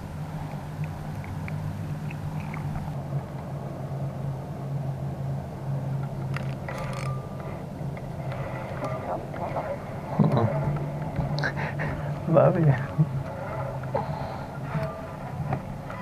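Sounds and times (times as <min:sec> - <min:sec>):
low mechanical hum: 0:00.0 - 0:16.0
reel squeak: 0:13.2 - 0:16.0.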